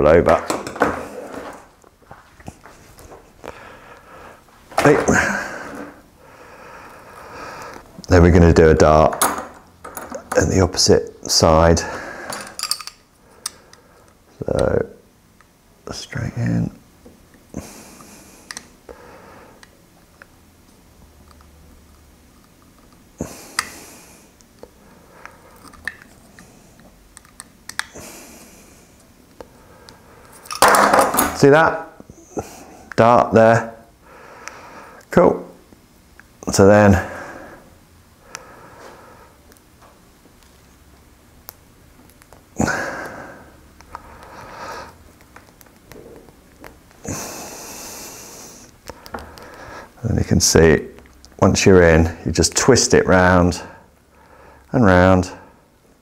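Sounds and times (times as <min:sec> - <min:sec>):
sharp nasal breaths: 0:23.2 - 0:25.7, 0:42.6 - 0:45.0, 0:47.0 - 0:50.0.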